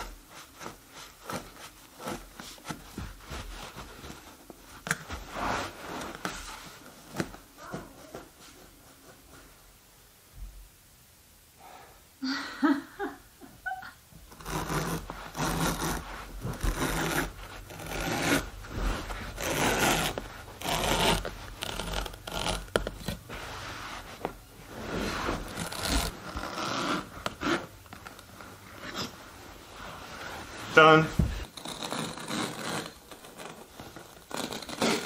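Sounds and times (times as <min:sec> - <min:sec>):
carpet tucker scraping carpet: 0:14.3 - 0:27.7.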